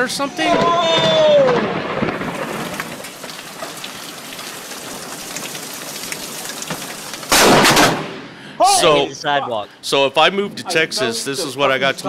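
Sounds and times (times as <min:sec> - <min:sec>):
heavy rain on brick pavement: 0:00.0 - 0:08.1
loud lightning crack: 0:00.4 - 0:05.4, 0:07.2 - 0:08.3.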